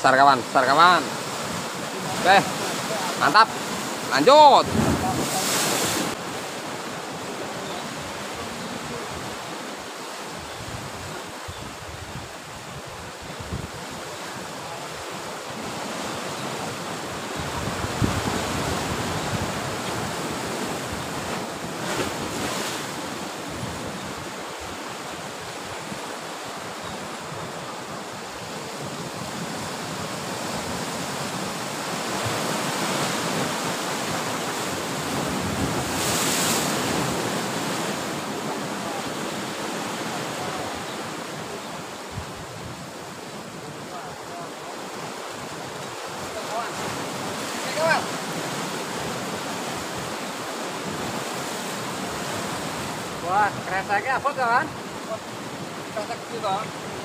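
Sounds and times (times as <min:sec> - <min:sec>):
sea surf on rocky shore: 0:00.0 - 0:57.0
wind gusting on microphone: 0:01.2 - 0:06.3, 0:10.3 - 0:14.6, 0:15.6 - 0:26.2, 0:26.8 - 0:41.0.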